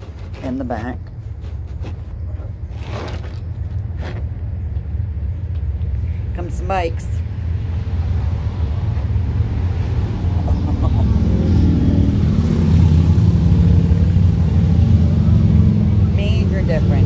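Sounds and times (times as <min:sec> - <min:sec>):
motorcycles passing: 0:06.2 - 0:17.0.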